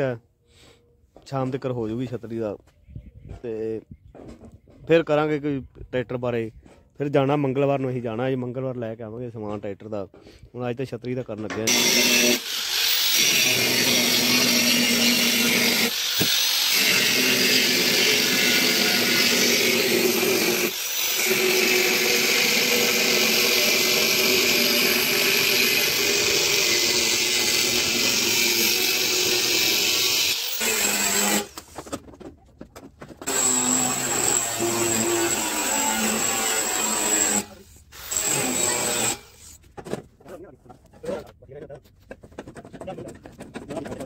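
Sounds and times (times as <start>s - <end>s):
angle grinder on steel: 11.6s - 31.7s, 33.2s - 39.4s.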